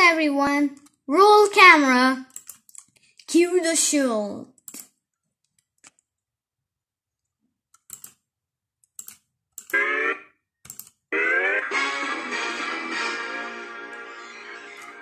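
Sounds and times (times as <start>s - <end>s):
sharp clicks: 2.3s - 3.3s, 8.8s - 9.8s, 10.6s - 11.0s
music: 11.2s - 15.0s.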